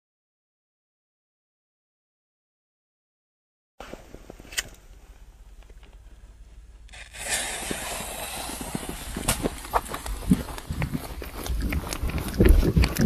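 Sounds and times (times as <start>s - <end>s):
firecracker fuse fizzing: 6.9s - 9.8s.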